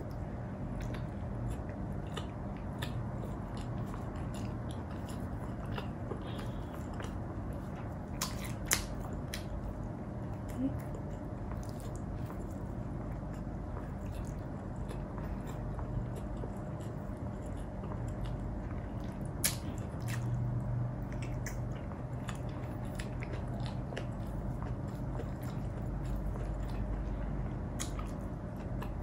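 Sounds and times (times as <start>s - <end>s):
chewing and biting mouth clicks: 0.0s - 29.0s
low hum: 0.0s - 29.0s.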